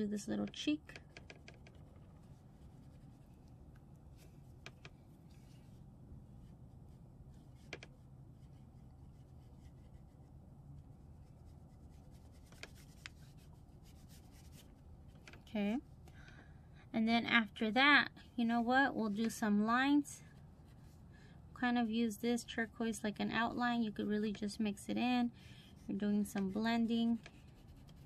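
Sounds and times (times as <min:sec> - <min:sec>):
crayon scratching on paper: 0:25.8 - 0:28.0.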